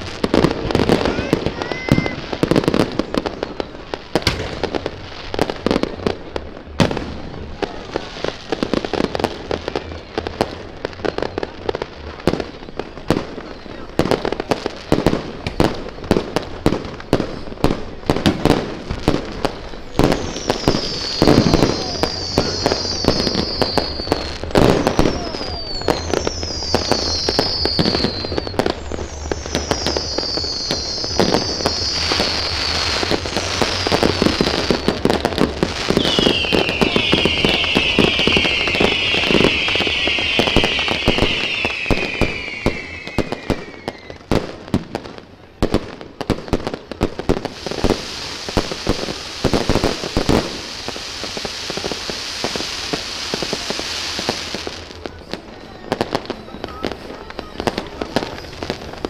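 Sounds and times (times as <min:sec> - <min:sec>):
fireworks bangs and crackling: 0:00.0 - 0:59.0
falling firework whistles: 0:18.2 - 0:45.0, 0:46.2 - 0:59.0.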